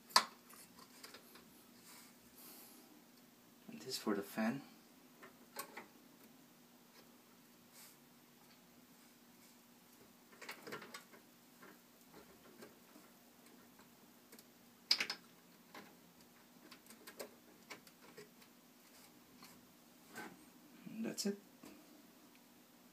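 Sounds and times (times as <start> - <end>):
plastic connectors clicking: 14.3 - 15.8.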